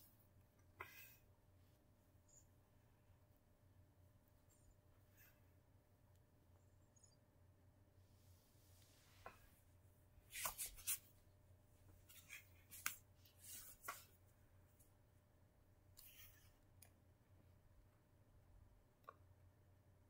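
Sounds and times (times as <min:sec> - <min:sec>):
soft rustles and small clicks: 0:11.8 - 0:15.0.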